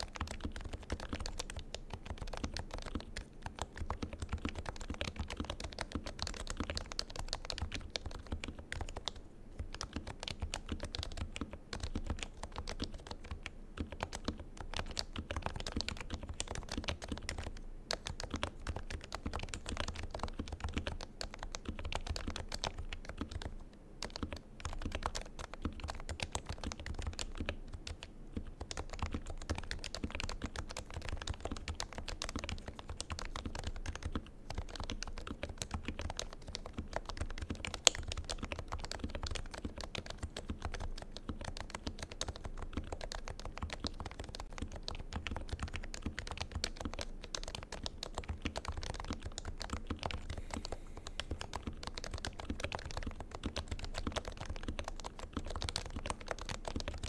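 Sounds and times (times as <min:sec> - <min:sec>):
fast keyboard typing: 0:00.0 - 0:57.0.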